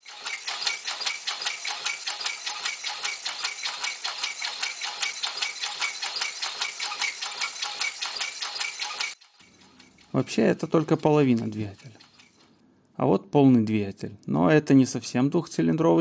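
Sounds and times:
steam engine clattering: 0.0 - 12.5.

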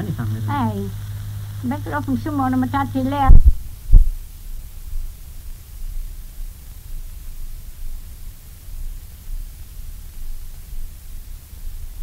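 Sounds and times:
low rumble: 0.0 - 4.2
recording hiss: 0.0 - 12.0.

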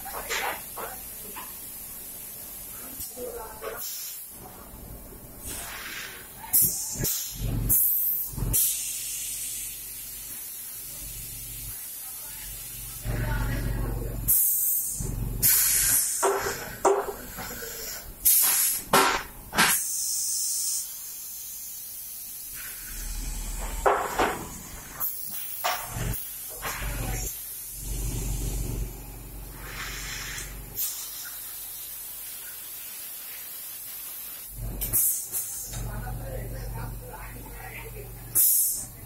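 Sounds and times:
compressed air hisses: 3.8 - 4.3, 5.4 - 13.1, 14.3 - 28.1, 29.5 - 35.8, 38.3 - 38.9
low machine hum: 25.8 - 30.8.

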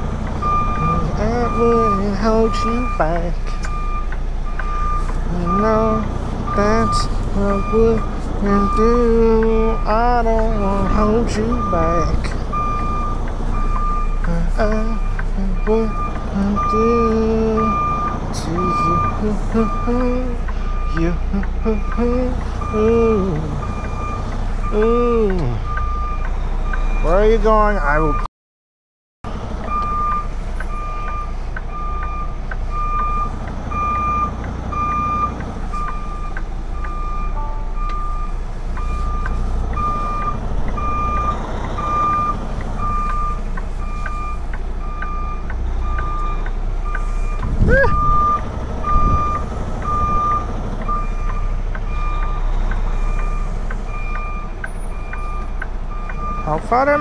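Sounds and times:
diesel engine running: 0.0 - 28.2, 29.3 - 57.0
truck reversing alarm beeping: 0.0 - 28.3, 29.3 - 57.0.

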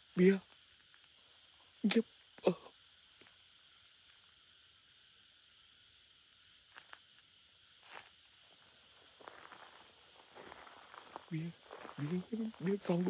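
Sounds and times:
night insects chirring: 0.0 - 13.0
footsteps rustling through grass: 7.8 - 13.0.

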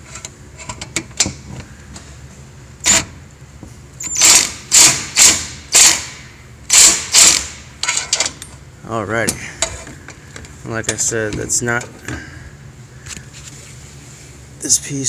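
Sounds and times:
impact driver bursts: 4.1 - 8.0.

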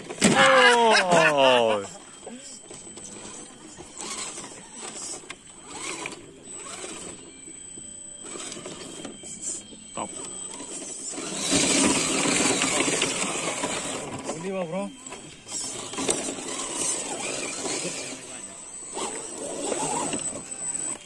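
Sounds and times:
toy truck electric motor running: 0.0 - 21.0.

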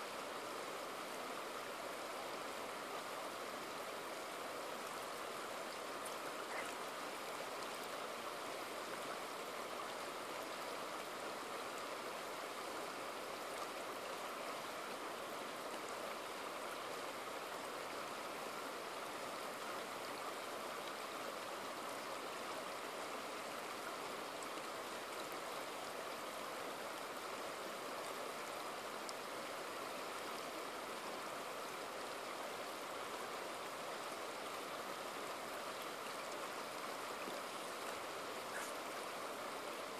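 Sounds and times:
river flowing over rocks: 0.0 - 39.9.

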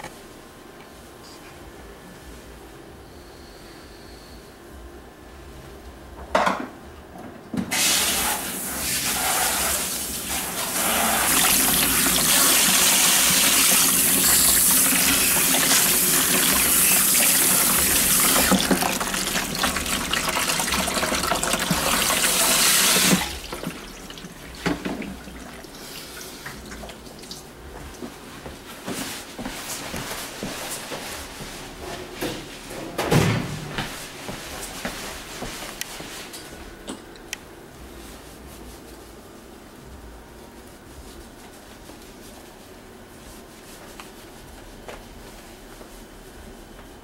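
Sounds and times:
water spraying into bowl: 7.8 - 26.8.

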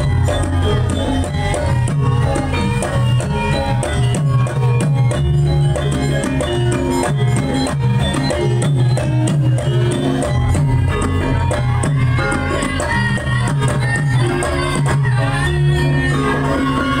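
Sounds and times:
hand drums playing busy rhythm: 0.0 - 17.0.

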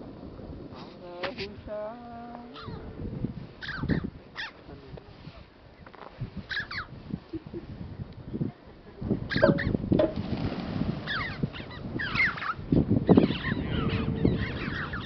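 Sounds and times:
birds giving high sliding calls: 3.6 - 4.6, 6.4 - 6.9, 9.3 - 9.8, 11.0 - 15.0
low rustling of wings: 9.3 - 15.0.

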